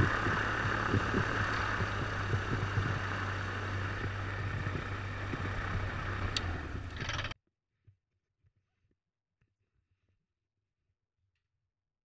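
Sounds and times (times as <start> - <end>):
aircraft engine idling: 0.0 - 7.4.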